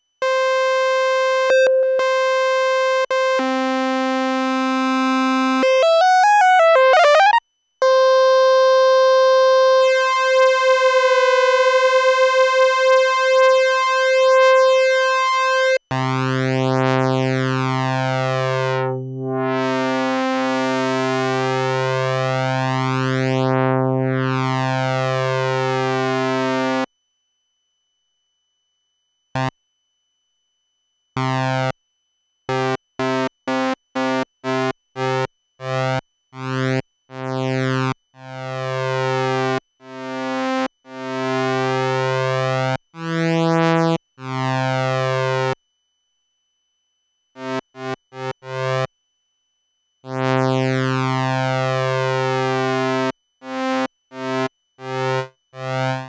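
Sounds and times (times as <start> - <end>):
synthesizer sawtooth notes: 5.6 - 7.4, 9.6 - 15.1.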